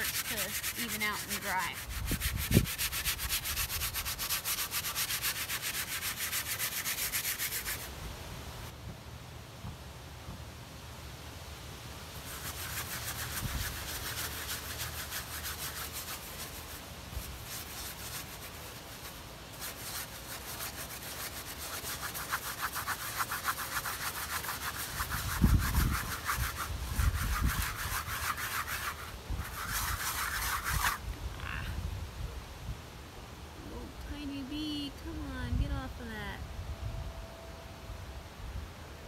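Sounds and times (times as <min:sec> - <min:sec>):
paintbrush scrubbing canvas: 0:00.0 - 0:07.9, 0:12.2 - 0:31.0.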